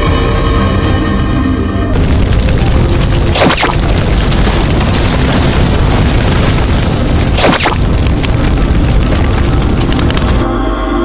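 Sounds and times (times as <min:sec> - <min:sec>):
background music: 0:00.0 - 0:02.0, 0:10.4 - 0:11.0
low booming rumble: 0:01.9 - 0:10.4
sharp whoosh: 0:07.4 - 0:07.9.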